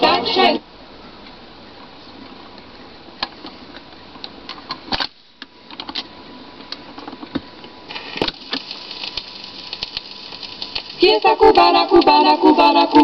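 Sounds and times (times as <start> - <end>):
low hiss: 0.0 - 13.0
record surface crackle: 7.6 - 13.0.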